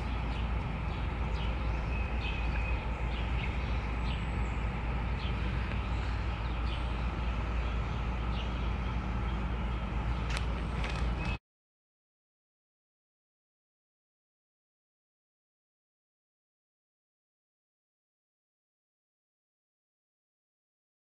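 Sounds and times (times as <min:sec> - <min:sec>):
bird chirps: 0:00.0 - 0:11.4.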